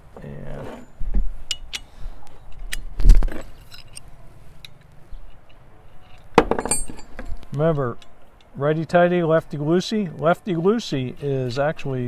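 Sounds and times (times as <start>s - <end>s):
metal parts clinking: 0.8s - 8.5s.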